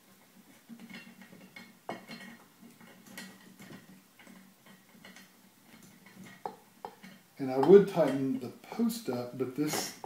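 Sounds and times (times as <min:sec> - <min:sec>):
small metallic clicks and scrapes: 0:00.2 - 0:08.2.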